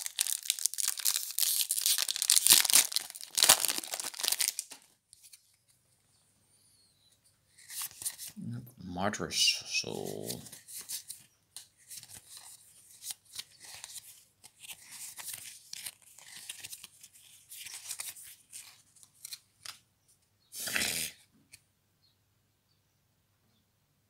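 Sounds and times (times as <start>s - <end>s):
trading cards sliding and rubbing: 7.6s - 8.4s.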